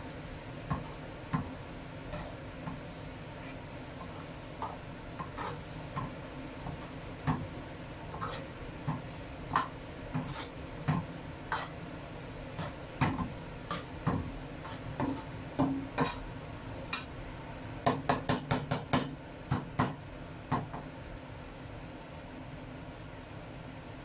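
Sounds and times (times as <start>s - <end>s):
spatula scraping and knocking wok: 0.0s - 17.2s, 17.8s - 20.9s.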